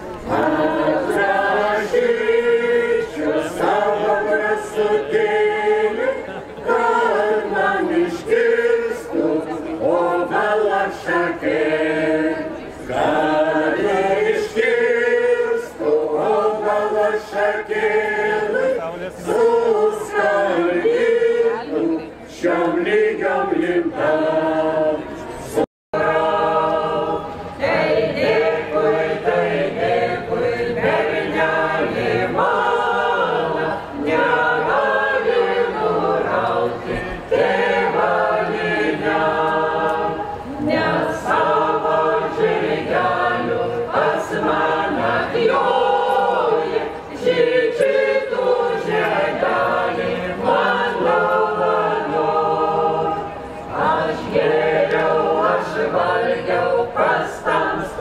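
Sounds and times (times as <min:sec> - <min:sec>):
folk vocal ensemble singing: 0:00.0 - 0:58.0.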